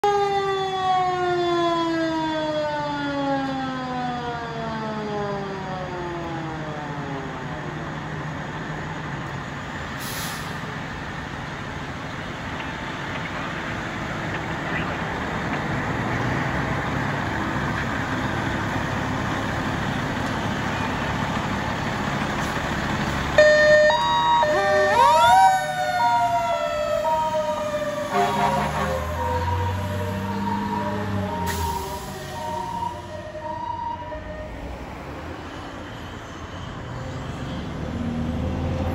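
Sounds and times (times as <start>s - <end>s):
siren hi-lo and wail: 0.0s - 7.8s, 23.4s - 34.8s
fire truck engine running: 0.0s - 36.8s.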